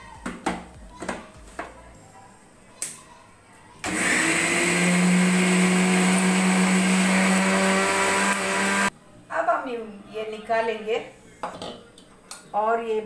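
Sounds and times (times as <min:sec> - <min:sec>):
mixer grinder running: 0:03.8 - 0:08.9.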